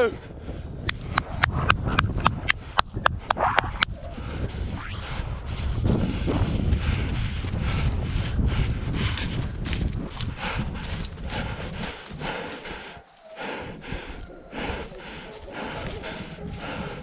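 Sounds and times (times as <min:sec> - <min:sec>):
wind rumble on microphone: 0:00.0 - 0:17.0
footsteps running on grass: 0:05.5 - 0:17.0.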